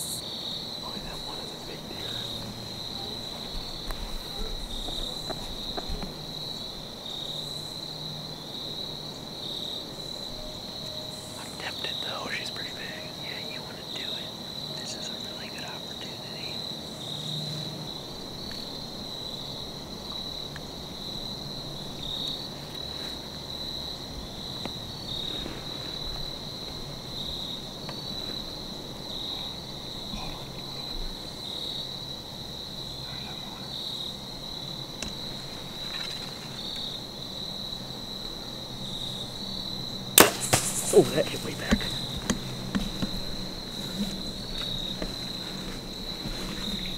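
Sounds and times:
insects trilling: 0.0s - 46.9s
faint ticks: 35.0s - 35.2s.

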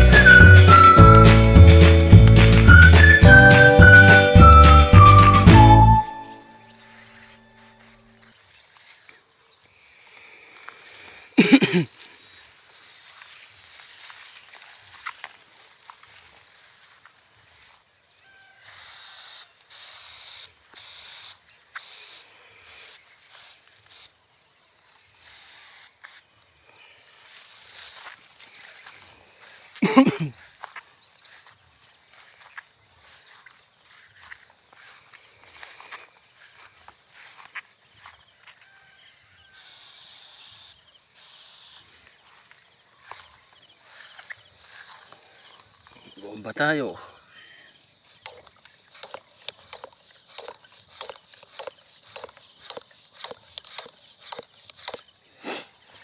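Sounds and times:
insects trilling: 6.2s - 56.0s
rice plants rustling: 12.2s - 17.8s.

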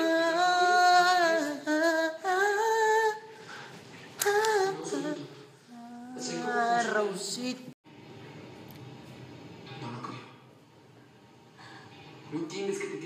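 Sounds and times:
person humming a melody: 5.7s - 6.6s.

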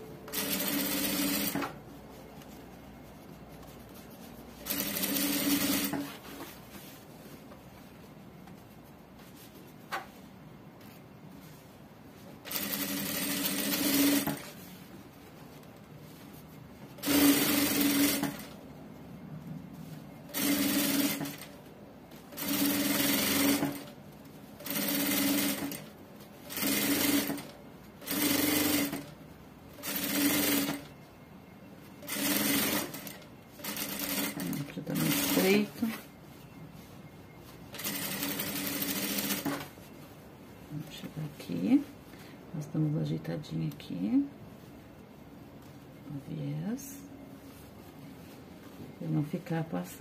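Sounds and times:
industrial sewing machine stitching: 0.3s - 1.8s, 4.7s - 6.1s, 12.5s - 14.4s, 17.0s - 18.5s, 20.3s - 21.5s, 22.4s - 23.9s, 24.6s - 25.8s, 26.5s - 29.1s, 29.8s - 30.8s, 32.0s - 35.6s, 37.8s - 39.6s.

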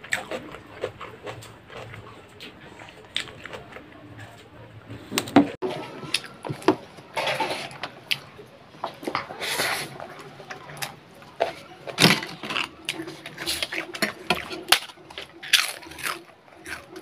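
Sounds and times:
chewing and mouth noises: 0.0s - 4.6s, 12.3s - 17.0s.

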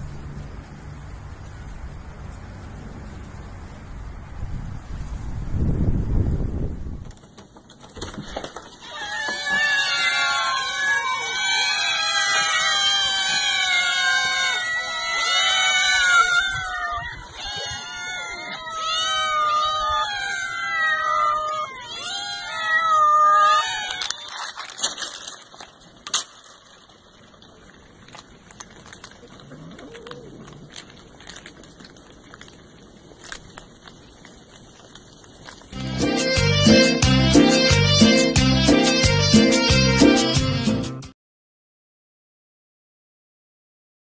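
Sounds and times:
cats meowing: 8.8s - 24.8s, 28.8s - 33.6s
cats crunching dry food: 20.2s - 36.0s.

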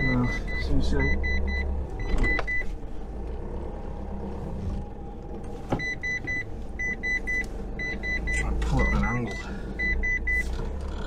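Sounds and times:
high-pitched reversing beeps: 0.0s - 2.7s, 5.8s - 10.5s
truck engine running at low revs: 0.0s - 11.0s.

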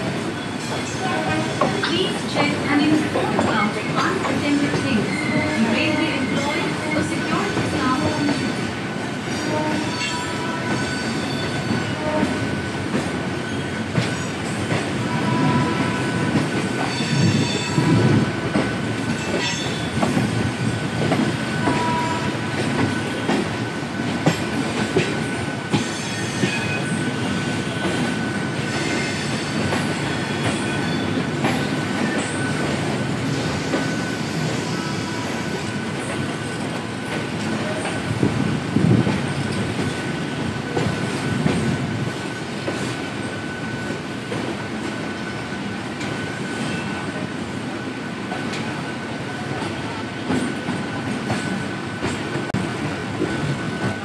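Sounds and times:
train wheels clattering over rails: 6.2s - 47.2s.

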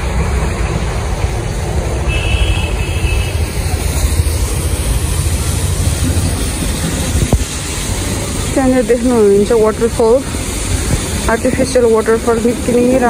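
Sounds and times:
wind buffeting microphone: 3.4s - 13.0s.

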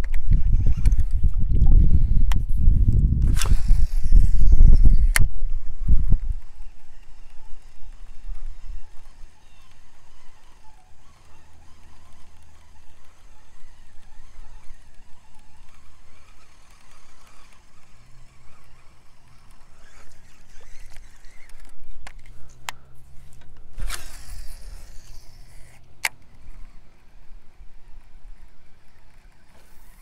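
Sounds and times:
wind rumbling on microphone: 0.0s - 9.7s
sharp clicks: 3.2s - 5.4s, 6.1s - 30.0s.

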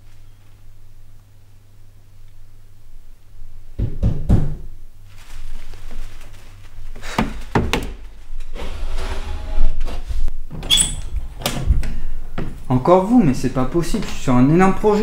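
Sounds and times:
knocking on wooden door: 3.8s - 4.6s, 7.2s - 8.0s.

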